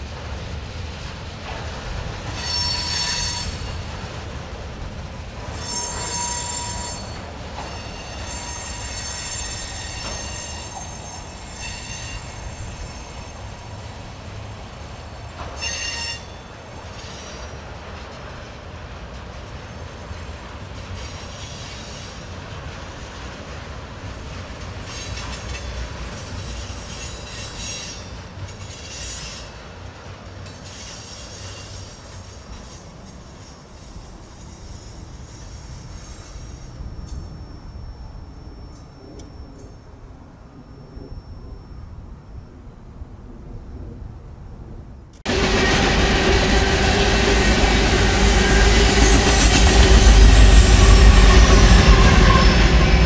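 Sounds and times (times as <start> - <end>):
train wheels rumbling on rail: 0.0 - 44.2, 45.0 - 53.0
steel wheels squealing: 2.2 - 3.9, 5.4 - 14.5, 15.3 - 17.7, 19.6 - 22.4, 24.1 - 29.7, 30.5 - 42.5, 45.3 - 53.0.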